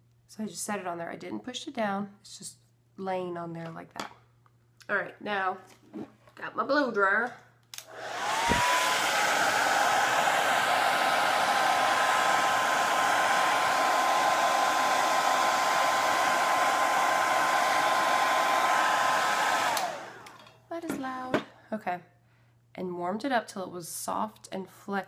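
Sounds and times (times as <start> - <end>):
hair dryer motor whine: 7.8 - 20.5
rush of air: 7.9 - 20.3.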